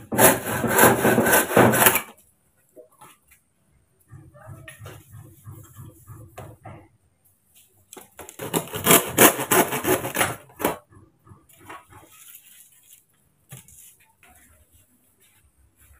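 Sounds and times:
handsaw rasping on bamboo: 0.0 - 2.1, 8.4 - 10.8.

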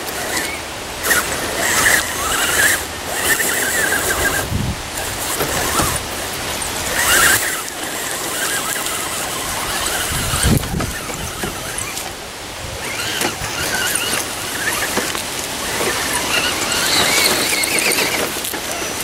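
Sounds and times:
electric motors whining: 0.0 - 19.0
wind buffeting microphone: 1.0 - 14.8.

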